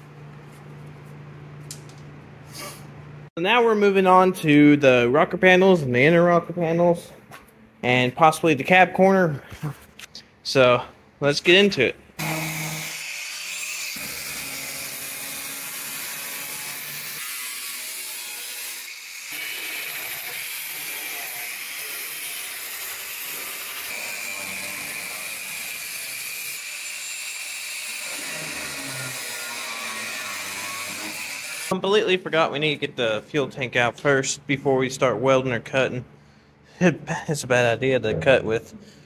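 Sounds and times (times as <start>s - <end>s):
angle grinder cutting steel: 12.2s - 31.7s.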